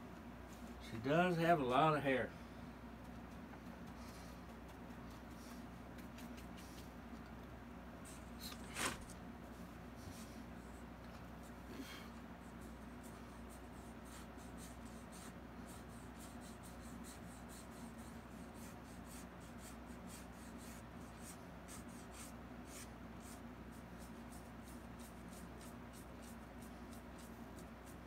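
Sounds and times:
faint low hum: 0:00.0 - 0:28.0
paintbrush scratching on canvas: 0:12.4 - 0:28.0.

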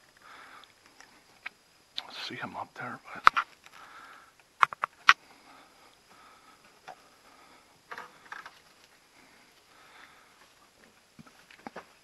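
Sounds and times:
sharp clicks: 0:04.4 - 0:05.2.

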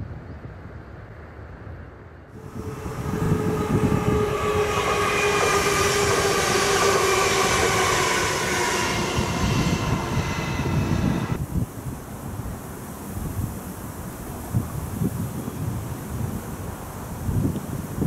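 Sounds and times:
train wheels rumbling on rails: 0:02.4 - 0:11.5
train whine: 0:02.4 - 0:11.5.

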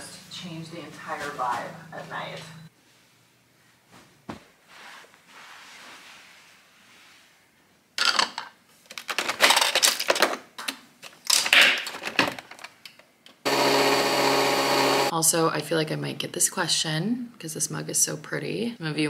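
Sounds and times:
fabric rustling: 0:02.8 - 0:07.4.

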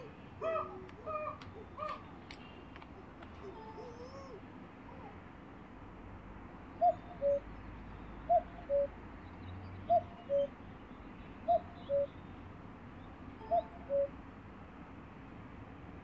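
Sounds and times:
cuckoo calling: 0:00.0 - 0:05.2, 0:06.8 - 0:09.0, 0:09.8 - 0:10.6, 0:11.4 - 0:12.2, 0:13.4 - 0:14.2.

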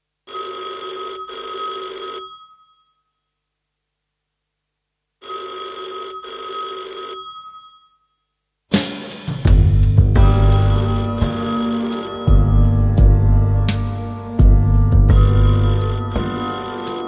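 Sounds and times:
telephone bell ringing: 0:00.3 - 0:03.3, 0:05.2 - 0:08.3, 0:10.6 - 0:12.7, 0:15.1 - 0:17.0.

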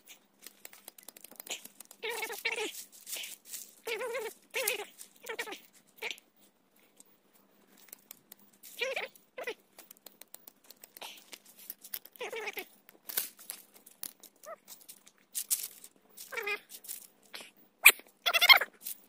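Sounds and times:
dry leaves crackling in fire: 0:00.4 - 0:05.6, 0:10.9 - 0:17.1
animal calling: 0:01.4 - 0:06.4, 0:08.7 - 0:09.9, 0:12.0 - 0:12.8, 0:16.2 - 0:16.7, 0:17.3 - 0:18.8.

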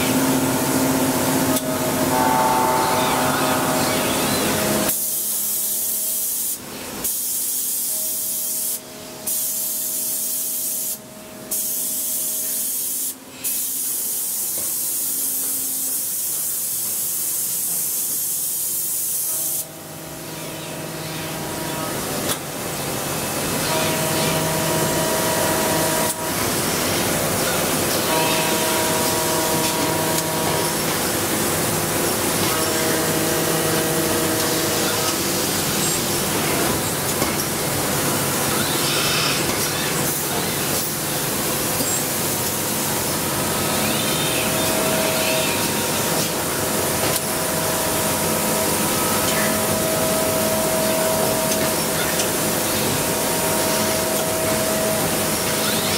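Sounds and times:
machine noise: 0:00.0 - 0:16.4, 0:19.0 - 0:55.9
steady high spray hiss: 0:03.1 - 0:19.7.

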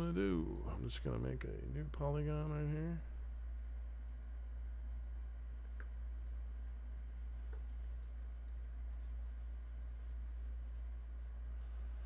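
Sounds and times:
low hum: 0:00.0 - 0:12.0
computer mouse clicks: 0:05.8 - 0:06.4, 0:07.5 - 0:09.1, 0:09.9 - 0:10.6.

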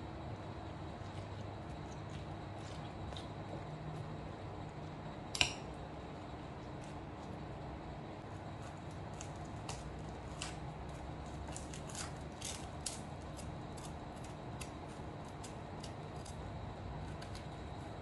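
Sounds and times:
steady low hum: 0:00.0 - 0:18.0
onion skin crackling: 0:08.4 - 0:17.9.

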